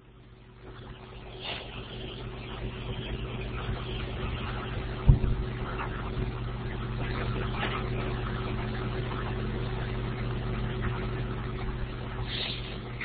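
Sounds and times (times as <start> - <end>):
steady low hum: 0.0 - 13.0
short thump: 5.1 - 5.5.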